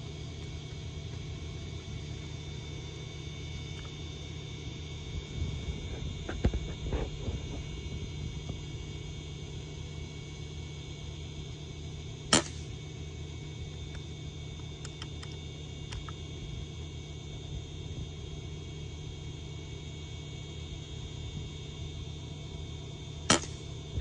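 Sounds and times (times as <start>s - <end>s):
steady background hum: 0.0s - 24.0s
air rifle shot: 12.3s - 12.7s, 23.3s - 23.6s.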